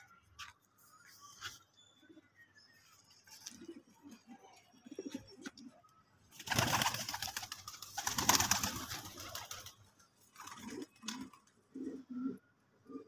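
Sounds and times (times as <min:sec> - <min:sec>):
pigeons cooing softly: 0:03.2 - 0:06.9, 0:08.4 - 0:13.0.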